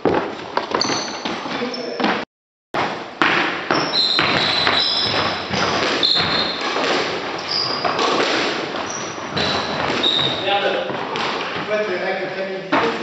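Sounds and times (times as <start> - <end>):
footfalls on wooden floor: 0.0 - 2.2
shoe squeaks: 0.7 - 2.2, 3.7 - 8.2, 8.8 - 10.8.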